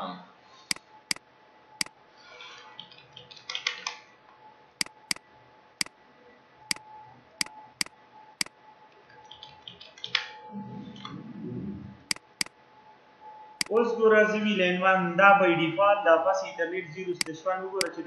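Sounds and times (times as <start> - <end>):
faint steady hum: 4.1 - 18.0
keyboard key presses: 4.8 - 5.2, 12.1 - 12.5
mouse clicks: 4.8 - 5.2, 12.1 - 12.5.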